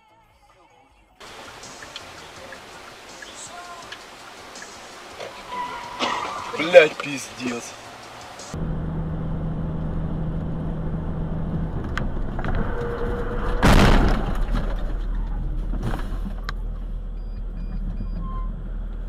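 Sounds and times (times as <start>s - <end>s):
engine and road noise drone: 1.2s - 19.0s
loud collision bang: 13.2s - 14.7s.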